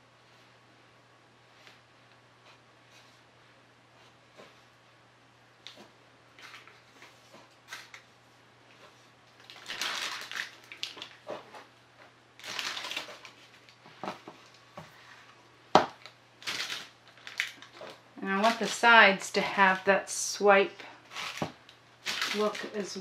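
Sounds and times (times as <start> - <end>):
hands rustling art supplies: 5.6 - 20.1, 20.7 - 23.0.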